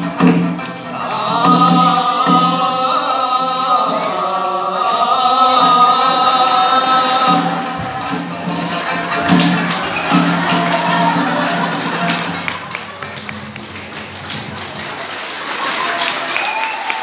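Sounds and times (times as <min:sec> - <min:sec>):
singer holding long note: 0:00.9 - 0:12.6.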